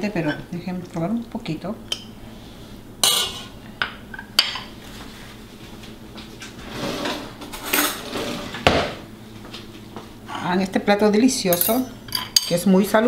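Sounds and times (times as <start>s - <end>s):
metal spoon clinking on a pot: 11.5s - 12.6s.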